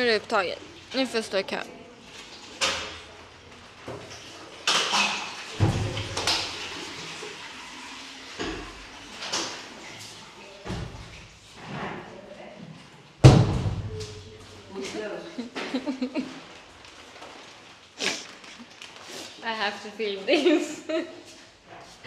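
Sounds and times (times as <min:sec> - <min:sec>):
stall doors knocking and thudding: 0:13.2 - 0:14.0.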